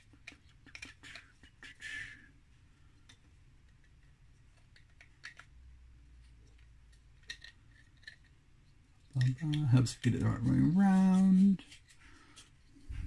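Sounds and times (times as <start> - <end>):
plastic parts clicking: 0.0 - 1.4, 3.0 - 5.6, 6.4 - 8.4.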